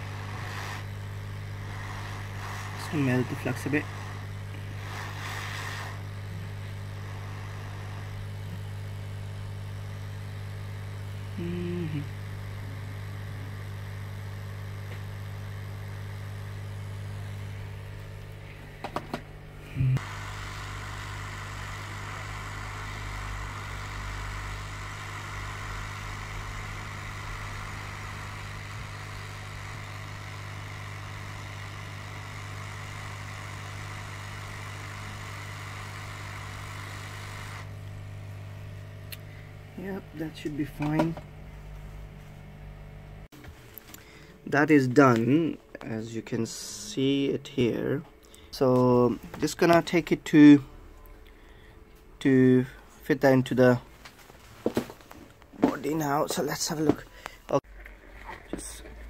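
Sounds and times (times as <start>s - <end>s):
hot airflow hiss: 0.0s - 8.6s, 20.0s - 37.8s
rework station hum: 0.0s - 59.0s.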